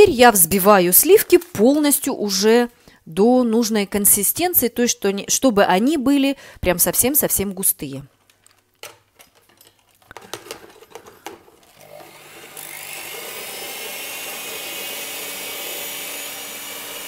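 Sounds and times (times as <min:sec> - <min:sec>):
clicks and knocks: 0:08.3 - 0:11.5
electric hand mixer whirring: 0:11.6 - 0:17.0.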